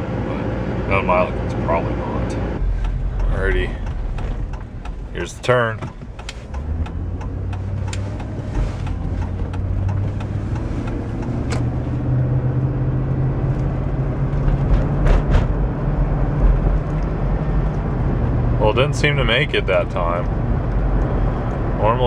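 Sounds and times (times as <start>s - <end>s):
truck engine running: 0.0s - 22.0s.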